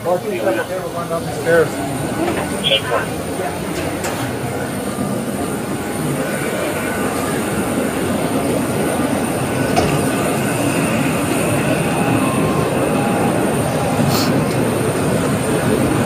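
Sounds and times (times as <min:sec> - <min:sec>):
aircraft and ground equipment rumbling: 0:00.0 - 0:16.0.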